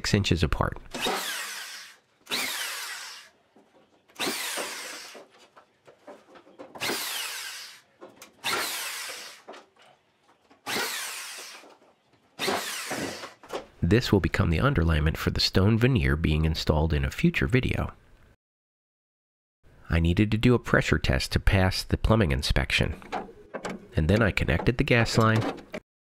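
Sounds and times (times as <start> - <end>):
power drill driving screws: 1.0 - 3.3, 4.2 - 5.3, 6.8 - 7.8, 8.4 - 9.5, 10.7 - 11.6, 12.4 - 13.4.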